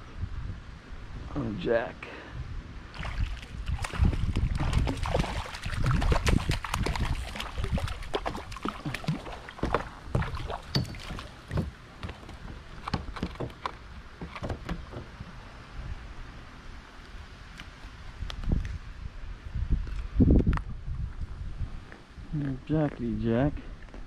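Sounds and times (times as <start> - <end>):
wind rumble on microphone: 0.0 - 1.7, 2.3 - 24.0
fish thrashing at the surface: 3.0 - 11.6.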